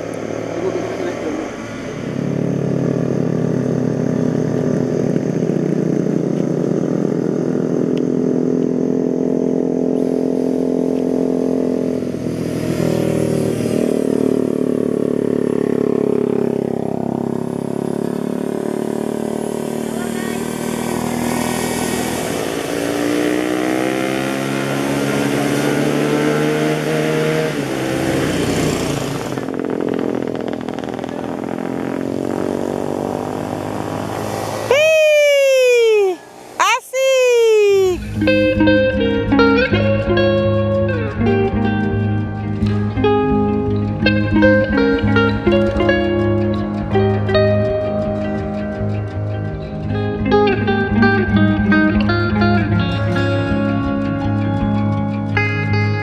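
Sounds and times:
drone propellers whining: 0:27.6 - 0:37.0, 0:37.6 - 0:55.1.

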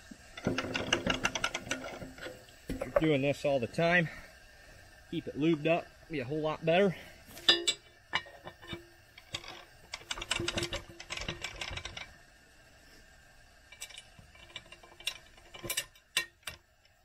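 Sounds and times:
metal clicks and rattles: 0:00.4 - 0:03.1, 0:07.4 - 0:12.2, 0:13.7 - 0:16.7
metal clinking and knocking: 0:00.4 - 0:03.1, 0:07.4 - 0:12.1, 0:13.7 - 0:16.7.

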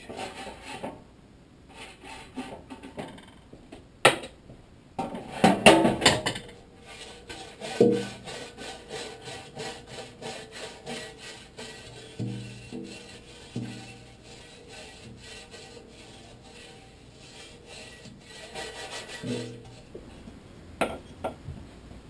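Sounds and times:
brush scraping on metal baking sheet: 0:00.0 - 0:01.0, 0:01.7 - 0:03.2, 0:05.0 - 0:20.3.

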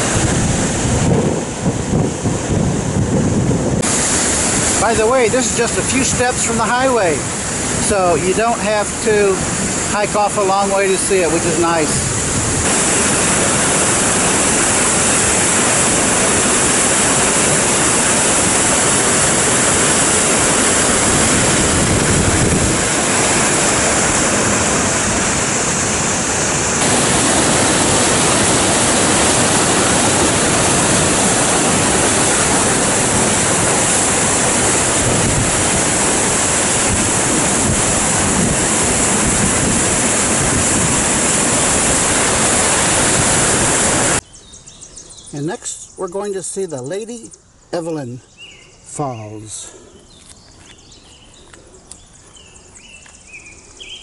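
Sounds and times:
waterfall rushing: 0:00.0 - 0:44.2.

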